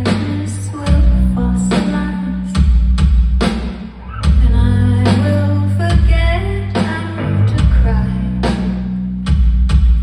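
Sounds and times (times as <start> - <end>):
woman singing: 0.0 - 2.7, 4.2 - 8.6
deep bass line: 4.1 - 10.0.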